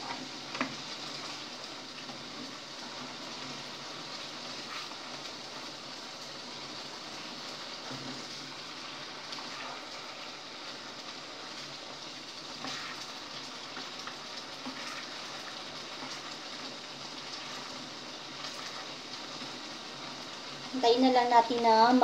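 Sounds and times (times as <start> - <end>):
sauce sizzling in a pan: 0.0 - 22.0.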